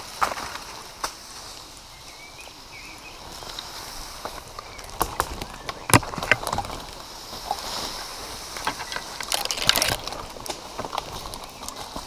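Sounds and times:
branches rustling against clothing: 0.0 - 12.0
footsteps on dry leaves: 0.0 - 12.0
twig snaps and knocks: 8.6 - 11.8.

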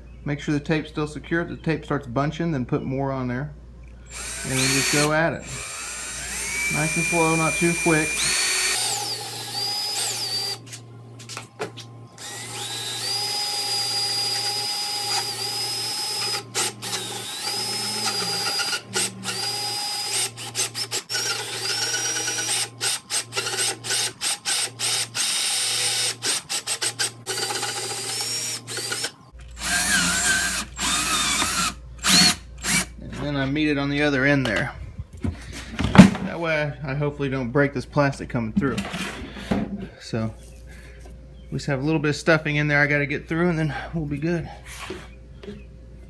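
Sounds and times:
cordless drill boring through plastic: 4.1 - 10.6, 12.2 - 32.9.

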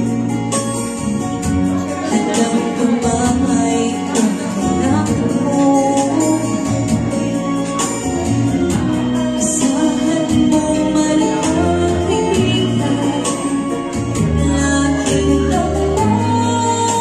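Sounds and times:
instrumental accompaniment with beat: 0.0 - 17.0
woman singing into microphone: 1.2 - 17.0.

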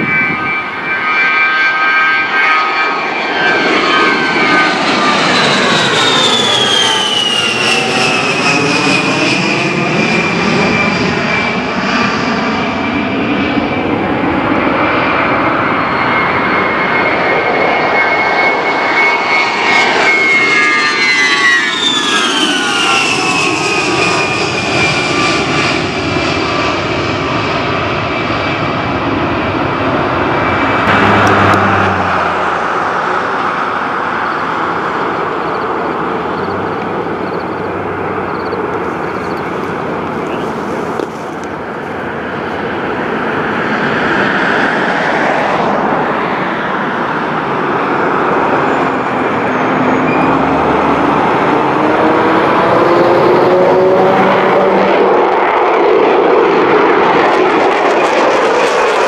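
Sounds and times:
jet aircraft passing low: 0.0 - 59.0.

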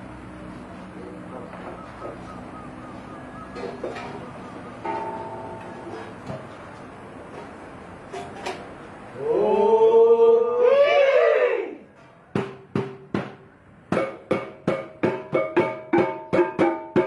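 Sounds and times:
gong ensemble strikes: 4.8 - 6.0
drum beat: 14.0 - 17.0.

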